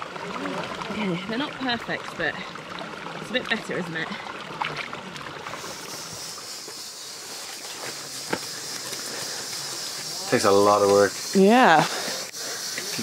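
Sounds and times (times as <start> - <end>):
water trickling in stream: 0.0 - 13.0
steady high hiss: 5.5 - 13.0.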